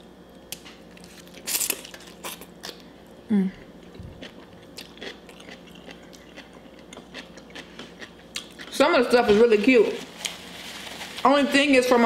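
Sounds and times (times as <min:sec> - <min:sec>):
person humming: 0:03.3 - 0:03.7
wet chewing: 0:03.9 - 0:08.8.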